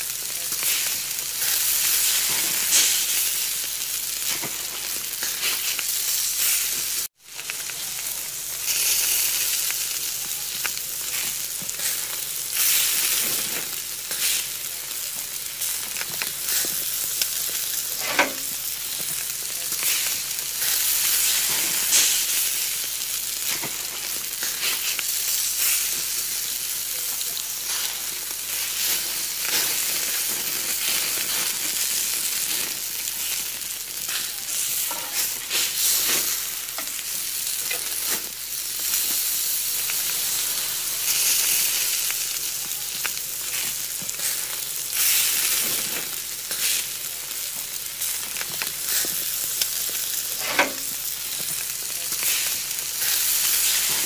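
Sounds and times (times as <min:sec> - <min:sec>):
food frying with crackles: 0:00.0 - 0:54.0.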